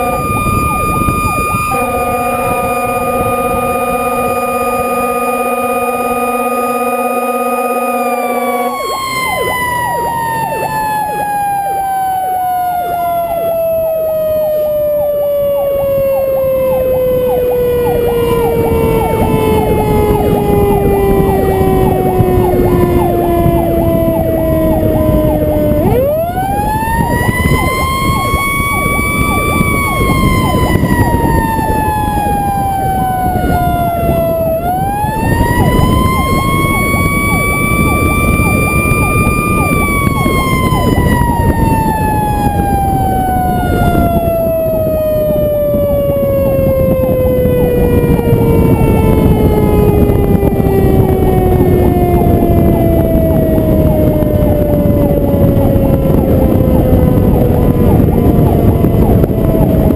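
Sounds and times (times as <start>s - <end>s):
horn blast: 0.0s - 9.5s
truck engine and road noise: 0.0s - 59.9s.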